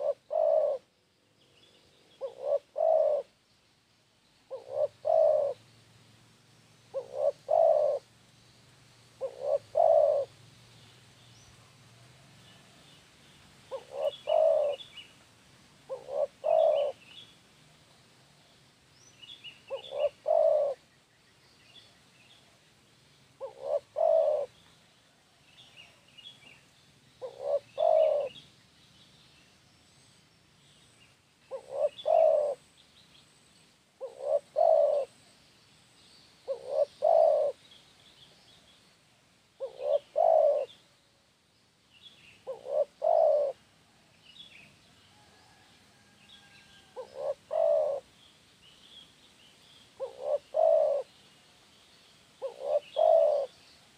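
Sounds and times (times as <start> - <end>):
dove cooing: 0.0 - 0.9, 1.6 - 3.3, 4.5 - 5.6, 6.9 - 8.1, 9.2 - 10.4, 13.7 - 14.9, 15.8 - 17.1, 19.6 - 20.8, 23.4 - 24.6, 27.2 - 28.4, 31.5 - 32.6, 34.0 - 35.2, 36.5 - 37.6, 39.6 - 40.8, 42.4 - 43.6, 46.4 - 48.1, 50.0 - 51.1, 52.4 - 53.6
small birds chirping: 0.0 - 11.8, 12.4 - 15.2, 15.8 - 17.4, 18.4 - 43.6, 46.4 - 53.9.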